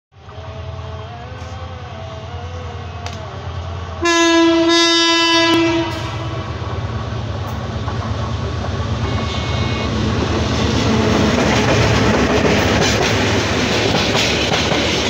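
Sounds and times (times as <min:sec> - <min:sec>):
diesel locomotive engine rumble: 0:00.2 - 0:15.0
train horn blast: 0:04.0 - 0:06.6, 0:09.0 - 0:10.1.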